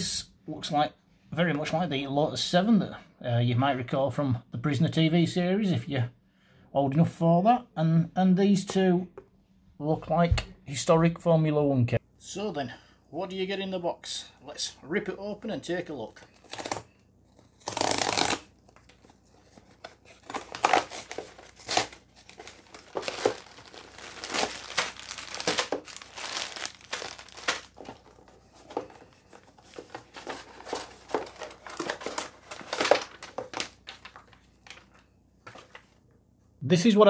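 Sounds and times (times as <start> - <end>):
cardboard box tearing: 17.4 - 18.5, 20.1 - 28.1
plastic bags crinkling: 17.6 - 35.0.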